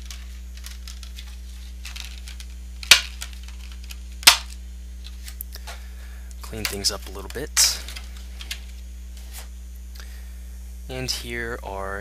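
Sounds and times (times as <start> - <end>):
plastic packaging crackling: 0.0 - 5.5
steady low hum: 0.0 - 12.0
sharp plastic snaps: 2.3 - 4.6.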